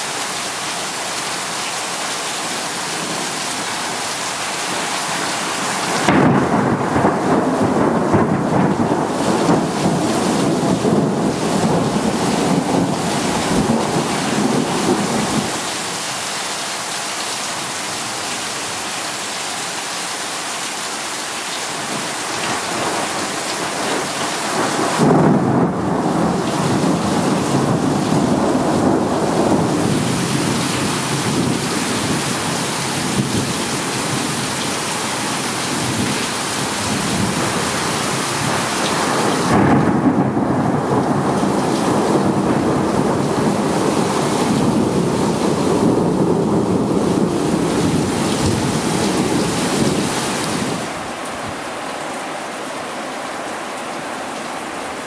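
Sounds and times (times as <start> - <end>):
heavy rain pouring: 0.0 - 55.0
thunder rumbling: 5.8 - 15.6, 21.8 - 51.7.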